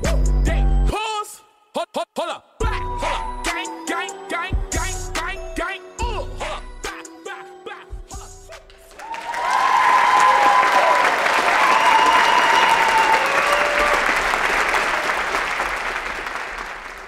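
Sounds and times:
audience clapping: 0:08.6 - 0:17.0
people cheering: 0:08.9 - 0:17.0.

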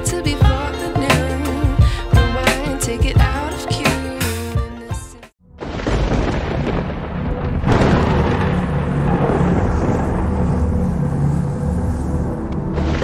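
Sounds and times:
booming hit: 0:05.6 - 0:10.7
deep steady rumble: 0:06.2 - 0:13.0.

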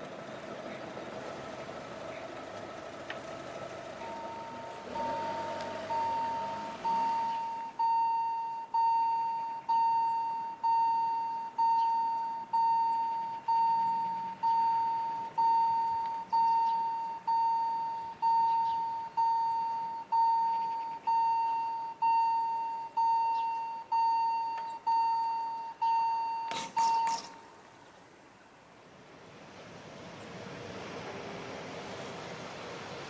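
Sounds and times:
level crossing bell ringing: 0:04.0 - 0:27.2.

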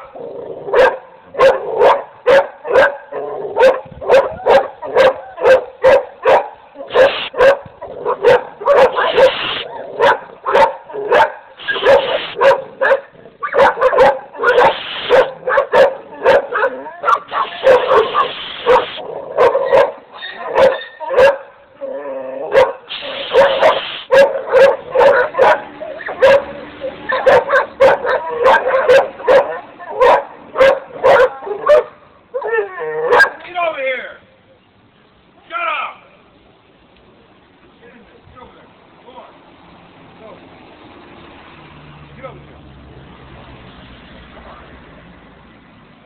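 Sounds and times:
dogs barking: 0:00.0 - 0:21.6, 0:22.5 - 0:33.4.

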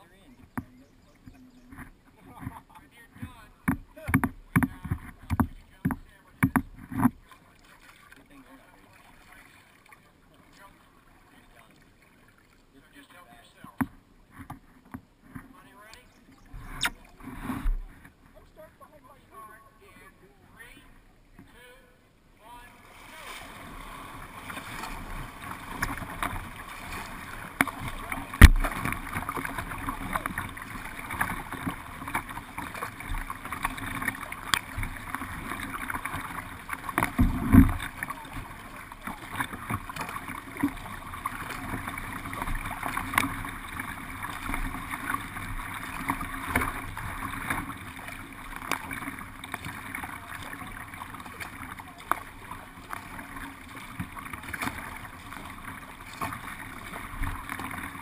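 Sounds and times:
paddles splashing water: 0:00.0 - 0:58.0
low thump: 0:28.4 - 0:28.7.

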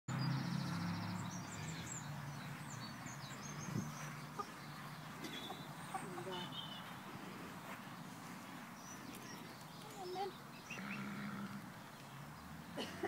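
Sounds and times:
hens calling: 0:03.3 - 0:07.5, 0:09.0 - 0:12.1.

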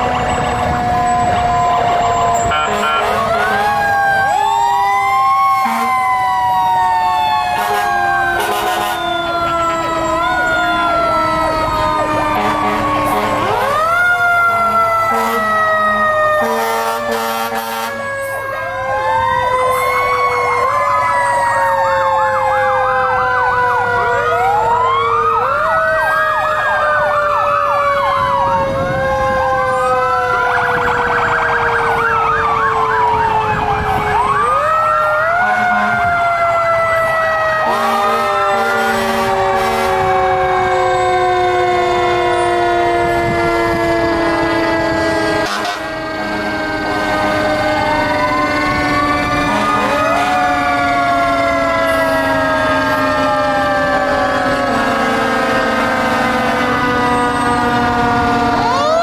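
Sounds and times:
electronic siren wails and yelps: 0:00.0 - 0:59.0
mechanical siren: 0:00.0 - 0:59.0
air horn blasts: 0:02.4 - 0:03.8, 0:05.6 - 0:06.0, 0:07.6 - 0:09.0, 0:12.3 - 0:13.8, 0:14.6 - 0:15.6, 0:16.4 - 0:18.1, 0:35.4 - 0:36.1, 0:37.6 - 0:47.6, 0:49.5 - 0:50.4, 0:54.7 - 0:56.9.

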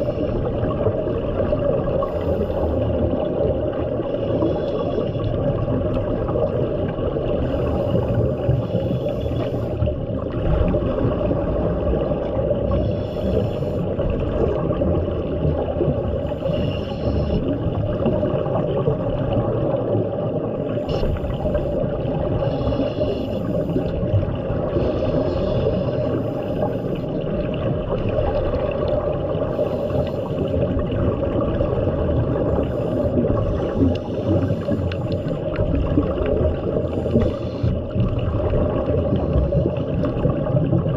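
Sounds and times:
regulator bubbles gurgling: 0:00.0 - 0:40.9
underwater low rumble: 0:00.0 - 0:40.9.

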